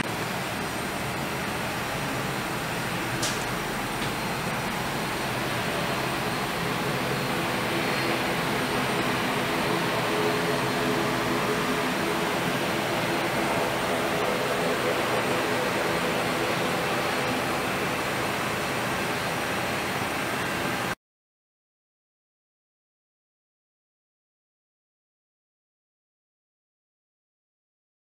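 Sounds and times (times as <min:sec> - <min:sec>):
faint high whine: 0:00.0 - 0:21.0
jet engines droning: 0:00.0 - 0:21.0.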